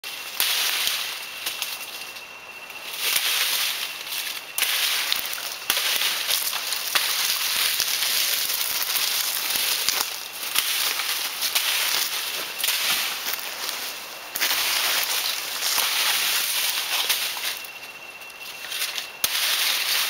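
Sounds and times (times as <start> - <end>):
dense high hiss: 0.0 - 20.0
machete chopping vegetation: 4.6 - 7.1, 18.8 - 20.0.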